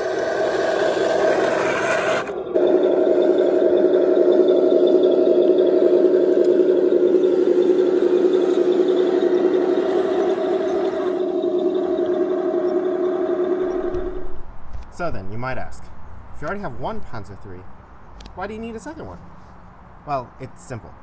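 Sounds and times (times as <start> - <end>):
track rattle: 0.0 - 14.5
electric drivetrain whine: 0.0 - 14.8.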